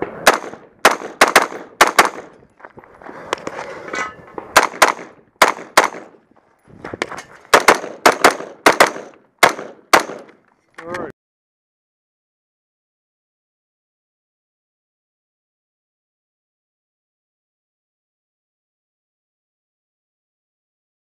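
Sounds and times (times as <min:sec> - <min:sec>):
rifle shots: 0:00.0 - 0:02.4, 0:04.5 - 0:06.2, 0:07.5 - 0:10.4.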